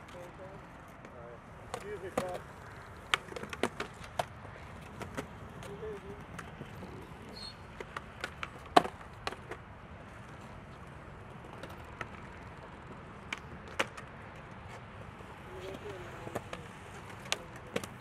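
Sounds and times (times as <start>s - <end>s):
skateboards clacking on concrete: 0.0s - 18.0s.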